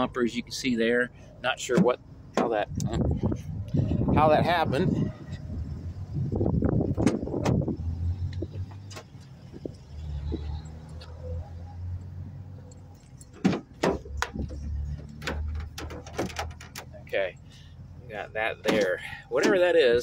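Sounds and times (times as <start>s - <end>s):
van door latch clicks: 6.9s - 7.7s
door rattles: 13.3s - 17.0s.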